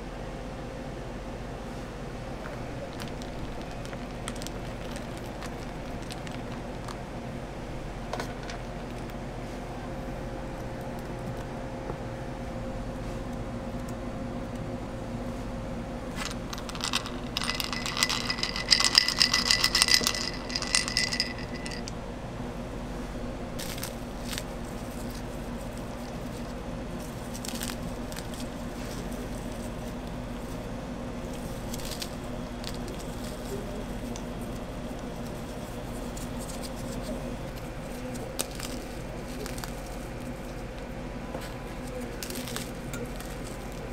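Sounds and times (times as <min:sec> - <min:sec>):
steady low hum: 0:00.0 - 0:43.9
chocolate balls rattling: 0:02.8 - 0:07.0, 0:16.1 - 0:21.9, 0:23.6 - 0:40.1, 0:41.9 - 0:43.9
cookies being broken by hand: 0:02.8 - 0:07.1, 0:16.1 - 0:21.9, 0:23.6 - 0:43.9.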